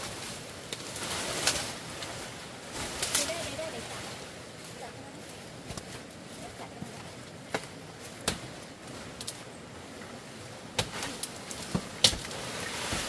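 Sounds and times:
twigs snapping: 0.0s - 2.2s, 2.8s - 3.6s, 7.4s - 9.5s, 10.7s - 13.0s
branches dragged: 0.0s - 13.0s
leaves rustling: 0.0s - 13.0s
sharp wood cracks: 7.5s - 9.4s, 10.7s - 13.0s.

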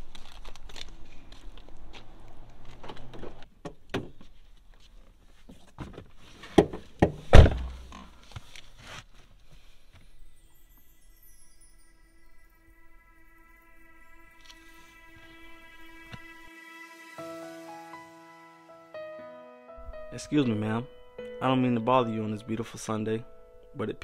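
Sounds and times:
car door shutting: 7.3s - 7.8s.

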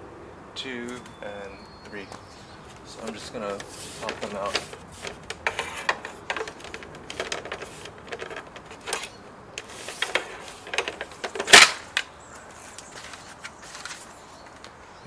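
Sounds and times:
plastic grille cracking: 3.0s - 12.1s.

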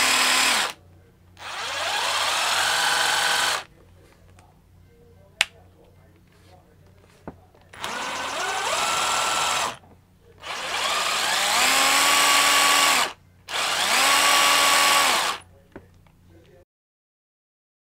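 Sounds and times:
impact driver motor whine: 0.0s - 0.8s, 1.4s - 3.6s, 7.8s - 9.8s, 10.4s - 15.4s.

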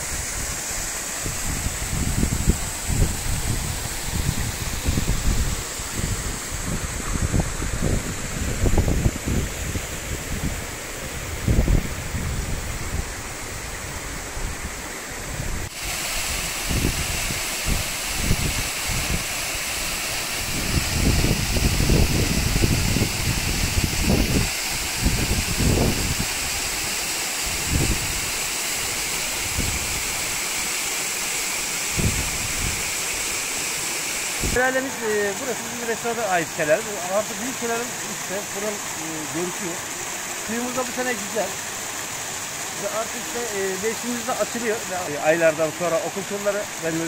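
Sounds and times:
stream running over rocks: 0.0s - 47.0s
waterfall rushing: 0.0s - 47.0s
wind buffeting microphone: 1.2s - 19.3s, 20.4s - 26.3s, 27.5s - 28.2s, 32.0s - 32.8s, 34.4s - 34.6s.

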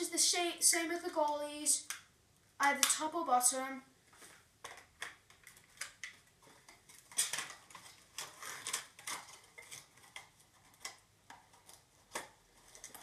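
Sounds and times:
packaging rustling: 4.1s - 13.0s.

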